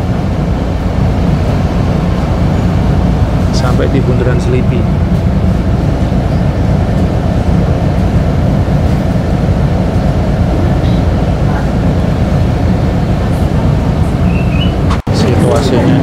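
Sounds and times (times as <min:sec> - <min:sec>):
bus engine and road noise: 0:00.0 - 0:16.0.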